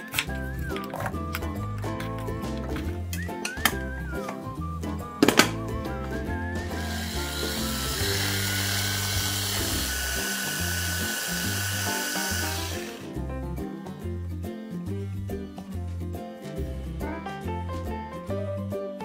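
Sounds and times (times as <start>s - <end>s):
background music: 0.0s - 19.0s
electric chopper motor whine: 6.5s - 13.2s.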